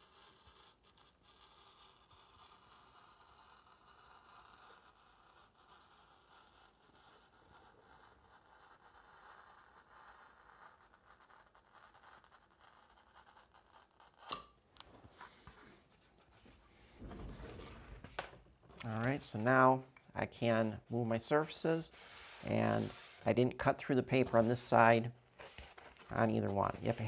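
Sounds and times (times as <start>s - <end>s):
knife scratching through foam board: 0.0s - 14.3s, 21.4s - 27.0s.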